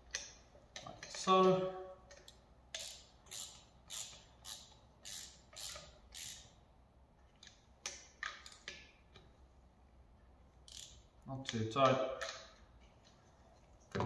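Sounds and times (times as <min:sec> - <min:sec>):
ratchet clicking: 0:00.0 - 0:01.3, 0:02.1 - 0:06.6, 0:07.4 - 0:09.0, 0:10.6 - 0:11.6.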